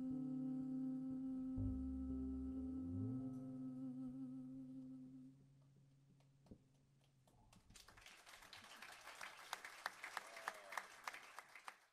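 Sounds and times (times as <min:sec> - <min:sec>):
electric bass note: 0:01.2 - 0:05.0
audience applauding: 0:07.7 - 0:11.9.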